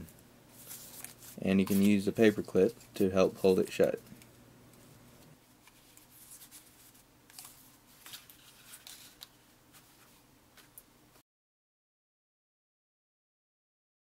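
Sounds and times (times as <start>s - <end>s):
paper card rustling: 0.5s - 4.2s, 4.8s - 10.8s.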